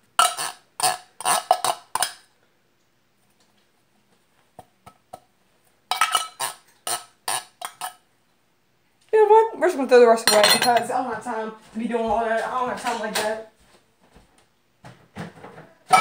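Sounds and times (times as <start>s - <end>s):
utensil scraping tin can: 0.2s - 2.2s, 5.9s - 8.0s.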